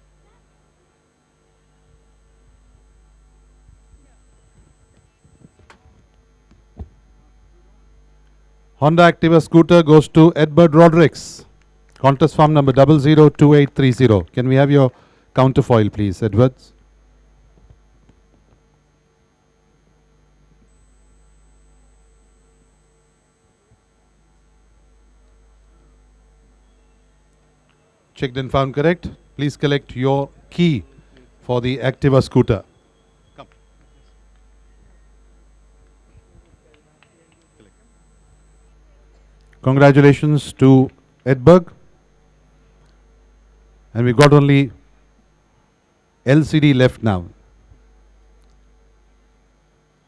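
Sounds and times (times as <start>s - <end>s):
electrical mains hum: 0.0s - 50.0s
faint clicks and rustles: 3.6s - 7.0s.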